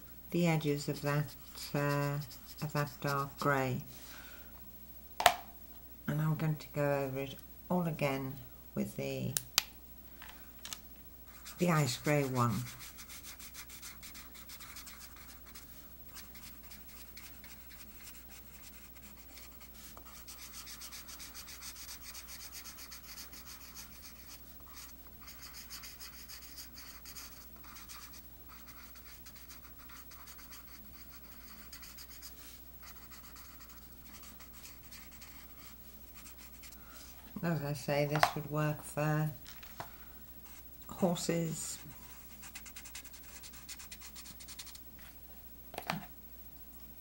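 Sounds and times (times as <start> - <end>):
marker rubbing on card: 1.0 - 3.5, 11.3 - 36.8, 41.8 - 44.8.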